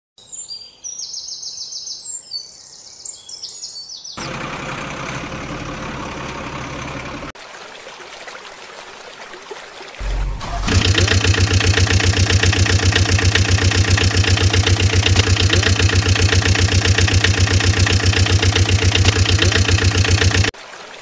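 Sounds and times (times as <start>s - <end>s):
birds chirping: 0.2s - 4.5s, 10.7s - 20.5s
deep heavy engine starting: 4.2s - 7.4s, 10.0s - 20.5s
vehicle engine running: 4.2s - 7.4s, 10.0s - 20.6s.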